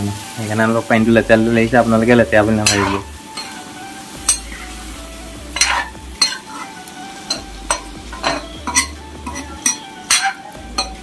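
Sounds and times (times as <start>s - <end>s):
curry sizzling: 0.0s - 11.0s
metal spatula scraping wok: 2.3s - 11.0s.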